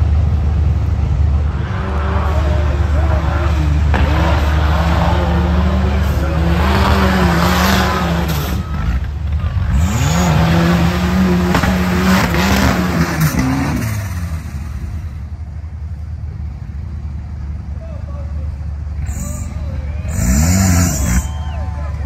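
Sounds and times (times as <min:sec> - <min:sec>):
buggy engine revving hard: 0:01.3 - 0:15.1, 0:19.0 - 0:22.0.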